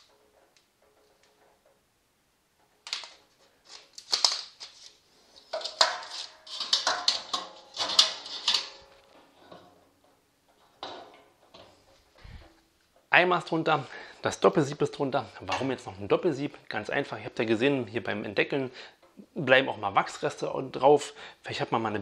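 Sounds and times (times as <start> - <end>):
metal sieve clanking: 5.4 - 15.9.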